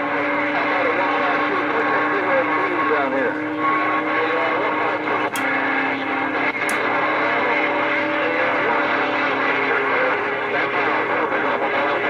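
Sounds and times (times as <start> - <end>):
radio static: 0.0 - 12.0
steady radio tone: 0.0 - 12.0
sharp clicks: 6.6 - 6.8.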